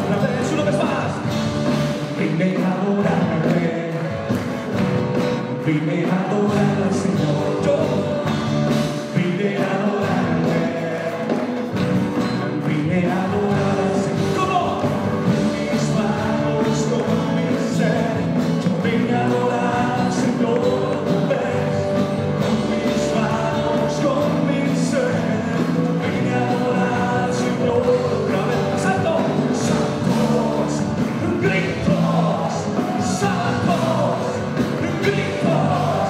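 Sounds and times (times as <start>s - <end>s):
acoustic and electric guitars: 0.0s - 36.0s
singers singing a praise song: 1.9s - 4.8s, 5.5s - 36.0s.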